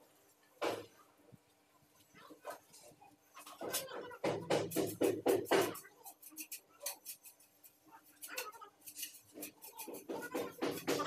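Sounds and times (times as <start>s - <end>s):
scraping of wet cement: 6.0s - 11.0s.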